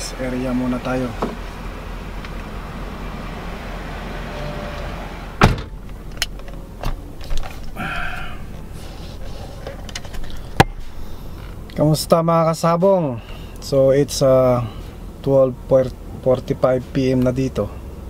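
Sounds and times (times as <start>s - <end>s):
car cabin noise: 0.0s - 12.1s.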